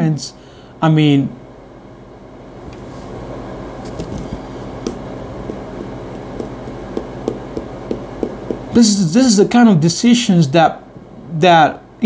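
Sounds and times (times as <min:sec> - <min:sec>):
steady rumbling: 0:02.7 - 0:09.5.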